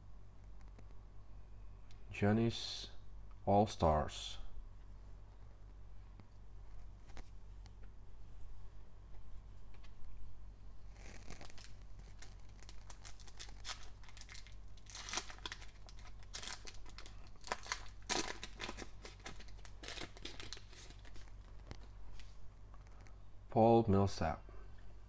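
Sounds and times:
foil wrapper tearing and crinkling: 11.0 - 21.4.

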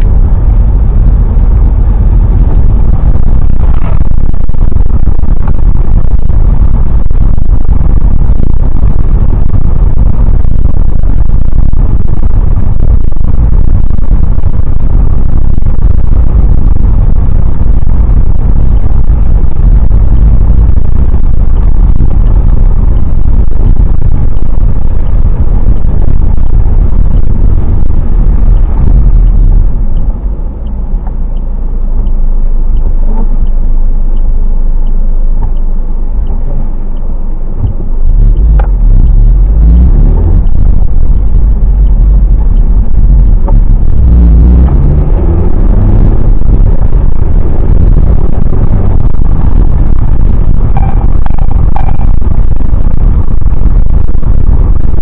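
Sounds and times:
engine and tyre rumble: 0.0 - 55.0
faint regular ticking: 23.3 - 44.5.

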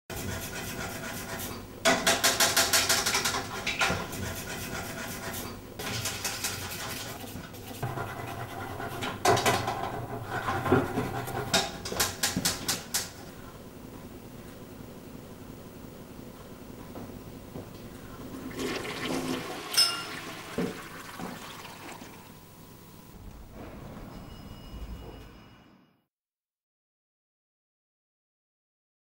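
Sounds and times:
toilet brush scrubbing: 0.1 - 1.6, 2.2 - 12.6, 18.3 - 22.3.

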